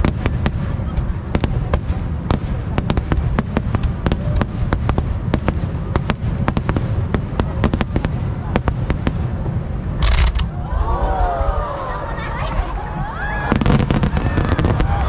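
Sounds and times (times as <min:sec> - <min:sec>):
fireworks cracking and popping: 0:00.0 - 0:10.5, 0:13.5 - 0:15.0
low booming of firework bursts: 0:00.0 - 0:11.5, 0:12.8 - 0:15.0.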